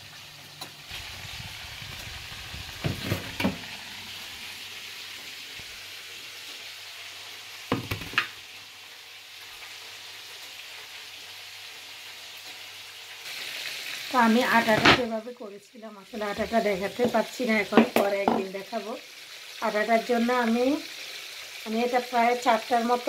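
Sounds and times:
food sizzling: 0:00.0 - 0:23.0.

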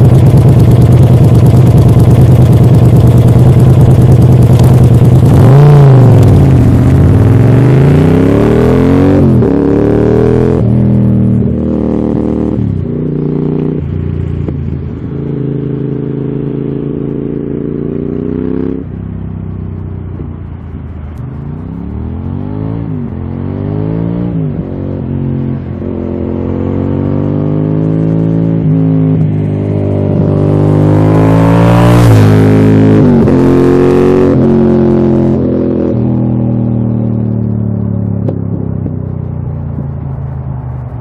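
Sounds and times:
motorcycle engine shifting gears: 0:00.0 - 0:18.9.

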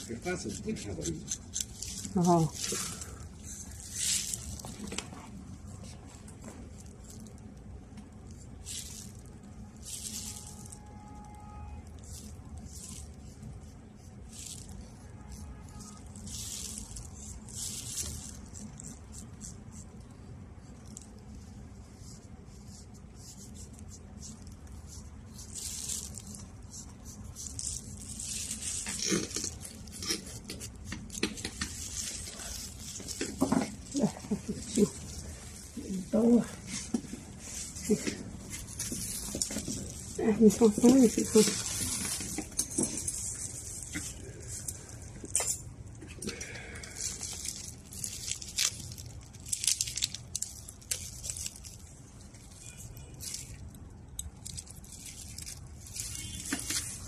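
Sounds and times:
blade wrapper crinkling and tearing: 0:00.0 - 0:57.0
plastic gloves rustling: 0:00.0 - 0:57.0
blade scraping callus: 0:25.5 - 0:36.9.

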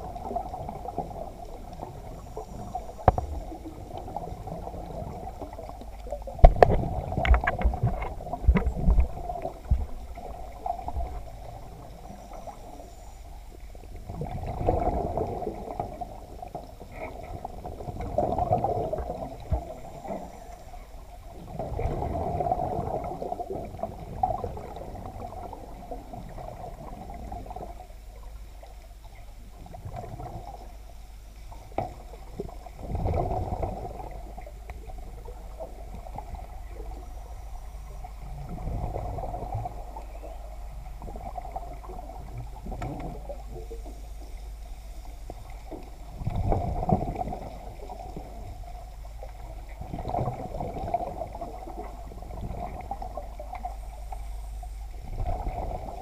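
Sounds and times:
muffled underwater hum: 0:00.0 - 0:56.0
bubbles rushing: 0:14.1 - 0:16.0, 0:21.5 - 0:25.6.

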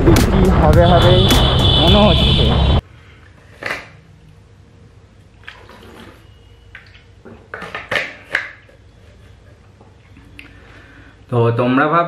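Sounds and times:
liquid sloshing in bottle: 0:05.3 - 0:08.7.

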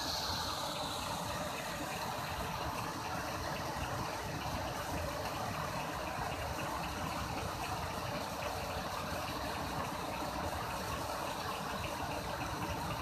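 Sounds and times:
water rushing over a weir: 0:00.0 - 0:13.0.

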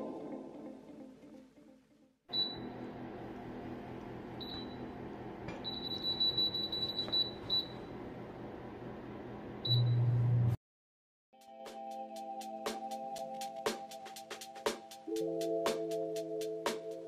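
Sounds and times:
control panel beeps: 0:04.4 - 0:04.8, 0:05.6 - 0:07.8, 0:09.7 - 0:10.1
loud low hum: 0:07.8 - 0:10.6.

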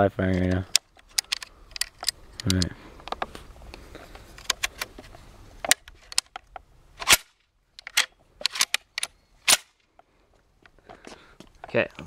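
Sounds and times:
metal clicks of rifle clip: 0:00.3 - 0:03.3, 0:05.6 - 0:09.8
rifle action clacks: 0:00.3 - 0:03.3, 0:05.6 - 0:09.7.

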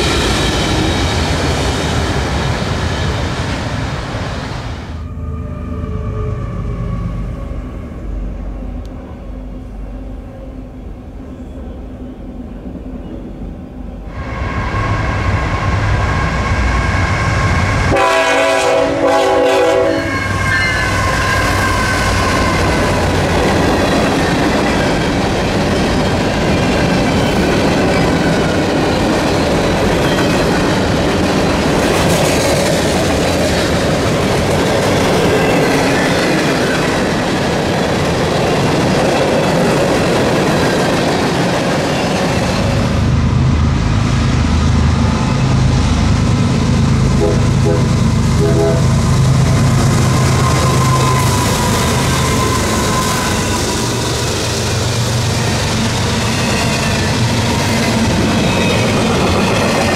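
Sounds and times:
freight train rumbling past: 0:00.0 - 0:59.9
locomotive air horn: 0:17.9 - 0:21.6, 0:47.2 - 0:49.0.

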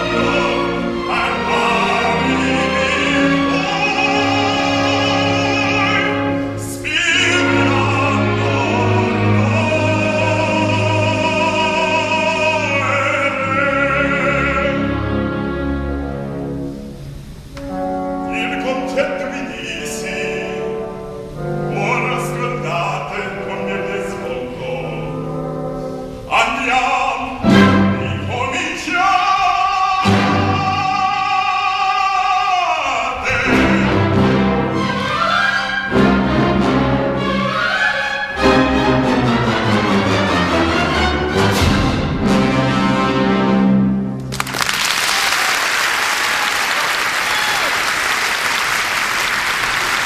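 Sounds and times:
baritone singing opera: 0:00.0 - 0:15.8, 0:18.2 - 0:25.7, 0:26.3 - 0:38.7
orchestra with strings: 0:00.0 - 0:45.0.

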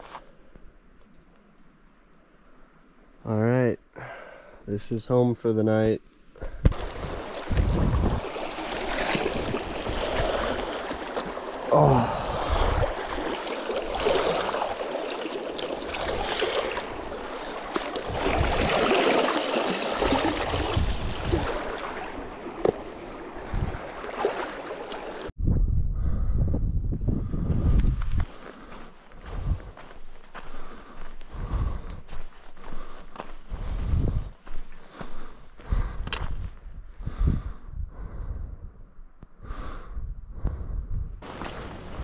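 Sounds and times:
river running and splashing: 0:06.7 - 0:25.3, 0:41.2 - 0:42.0
water sloshing around boot: 0:06.7 - 0:25.3.

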